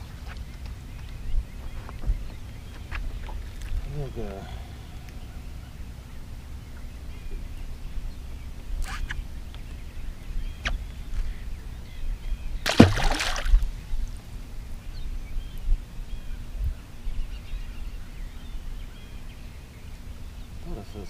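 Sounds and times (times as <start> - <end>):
faint birds chirping: 0.0 - 21.0
low wind rumble: 0.0 - 21.0
water lapping at hull: 12.6 - 13.9.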